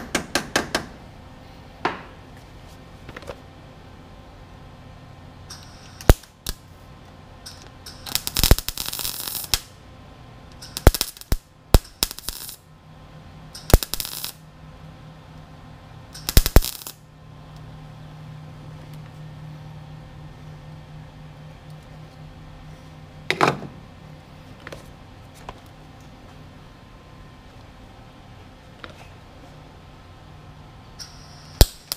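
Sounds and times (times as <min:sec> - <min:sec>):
steady low hum: 0:00.0 - 0:31.9
welding arc crackle: 0:05.5 - 0:06.9, 0:07.5 - 0:09.8, 0:10.5 - 0:12.8, 0:13.5 - 0:14.5, 0:16.1 - 0:17.1, 0:31.0 - 0:31.9.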